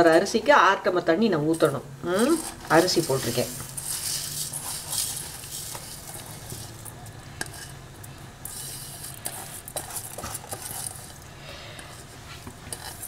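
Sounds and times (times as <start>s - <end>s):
scraping in steel bowl: 1.5s - 7.8s, 8.4s - 11.3s, 11.9s - 13.0s
wet rice pouring: 3.1s - 7.7s.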